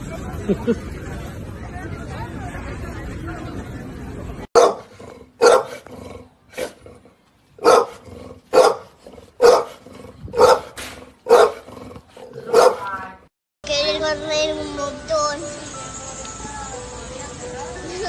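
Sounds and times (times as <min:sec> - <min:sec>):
large dog barking: 0:04.6 - 0:05.9, 0:07.6 - 0:13.0.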